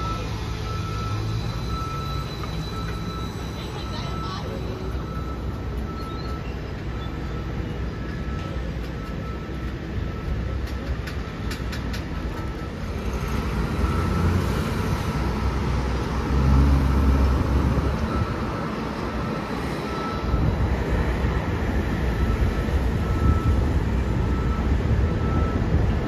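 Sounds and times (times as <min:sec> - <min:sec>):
bus road rumble: 0:00.0 - 0:26.0.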